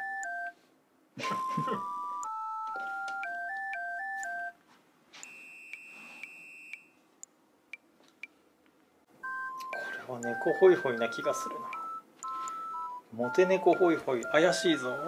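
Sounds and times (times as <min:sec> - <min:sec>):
electronic beeping jingle: 0:09.2 - 0:15.0
steady high electronic beep: 0:09.2 - 0:15.0.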